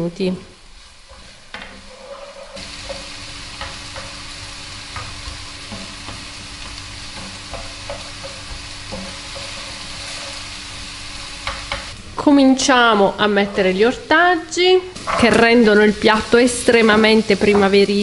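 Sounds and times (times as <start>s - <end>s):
vegetables sizzling in oil: 0.0s - 18.0s
wooden spatula scraping pan: 1.0s - 4.3s, 4.9s - 10.6s, 15.0s - 17.8s.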